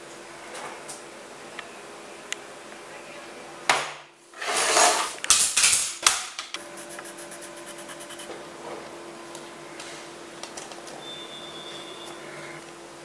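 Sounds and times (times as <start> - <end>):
light scratches on card: 6.6 - 8.4
steady low hum: 6.6 - 10.4.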